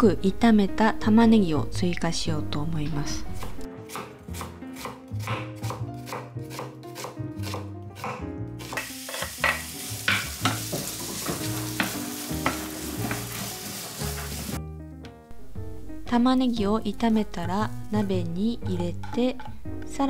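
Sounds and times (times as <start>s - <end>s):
knife chopping on wooden board: 3.4s - 13.2s
onion sizzling in frying pan: 8.6s - 14.6s
spatula tapping pan: 8.8s - 13.5s.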